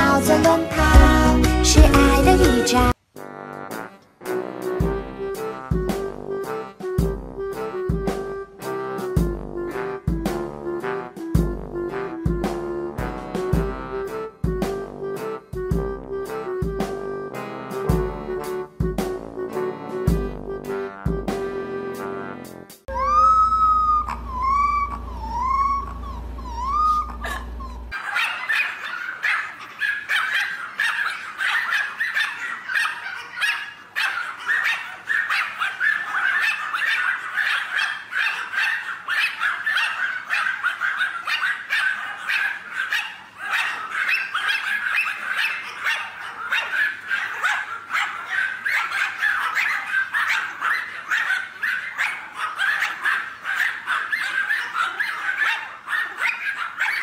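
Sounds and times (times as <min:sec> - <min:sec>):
many small dogs barking: 0:22.9 - 0:57.0
puppy whimpering: 0:22.9 - 0:57.0.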